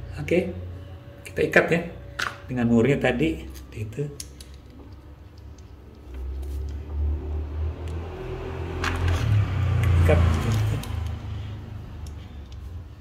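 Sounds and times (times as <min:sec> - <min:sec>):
vehicle engine rumbling: 0:03.2 - 0:13.0.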